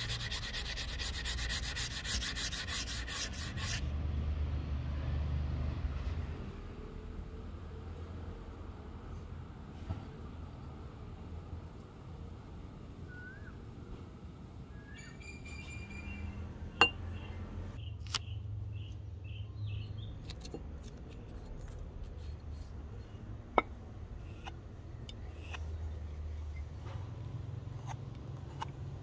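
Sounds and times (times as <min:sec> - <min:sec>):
small birds chirping: 0:14.8 - 0:20.5.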